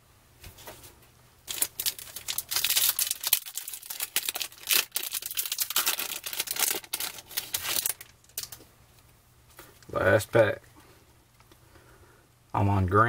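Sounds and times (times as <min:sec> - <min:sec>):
foil wrapper crackling and rustling: 0:01.5 - 0:08.6.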